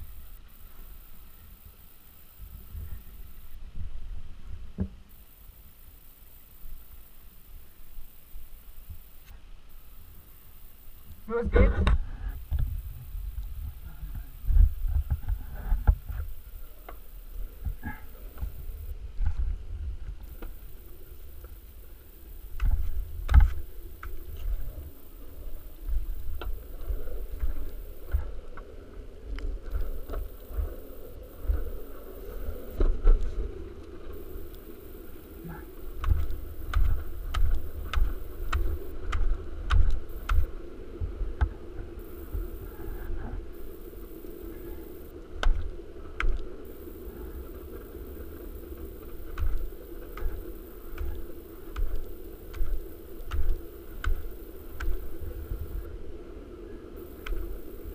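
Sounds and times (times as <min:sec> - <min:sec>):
wind buffeting microphone: 0:10.6 - 0:57.9
sharp clicks with low thumps: 0:11.1 - 0:28.7, 0:34.2 - 0:55.9, 0:57.0 - 0:57.9
board wheels rolling on asphalt: 0:11.9 - 0:57.9.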